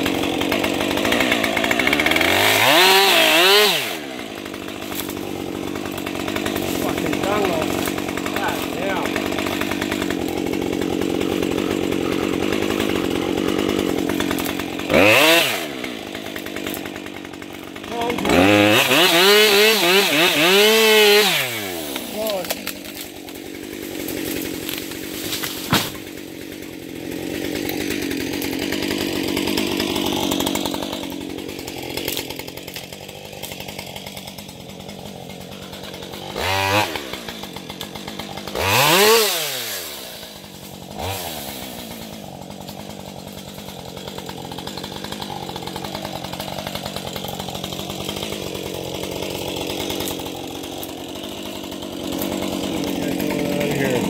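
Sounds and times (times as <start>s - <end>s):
chainsaw idling and revving: 0.0s - 54.0s.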